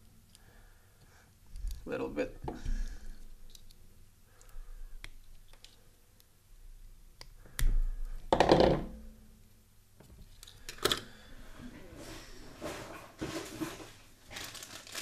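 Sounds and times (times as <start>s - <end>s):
small clicks and taps: 4.4s - 6.3s.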